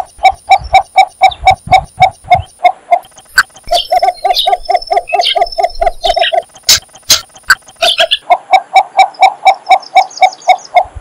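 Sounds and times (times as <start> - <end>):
bittern calling low notes: 0.0 - 8.2.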